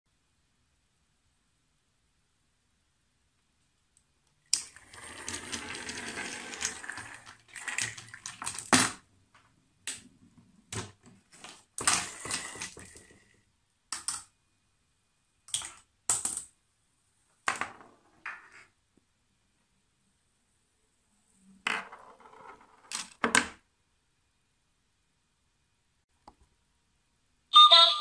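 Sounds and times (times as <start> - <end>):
toy cart rolling: 4.6 - 8.8, 11.4 - 13.2
small parts clacking and falling: 10.7 - 13.2, 13.9 - 14.3.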